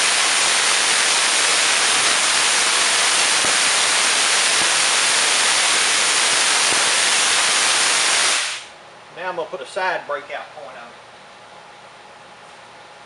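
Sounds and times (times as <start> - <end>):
sharp spark cracks: 0.0 - 8.8
tesla coil sparks hissing: 0.0 - 8.8.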